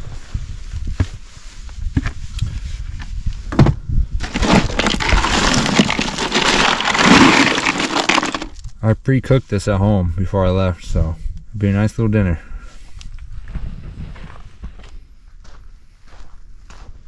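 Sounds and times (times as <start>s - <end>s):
hand rummaging through ice cubes: 4.2s - 8.6s
footsteps on dirt: 13.2s - 17.0s.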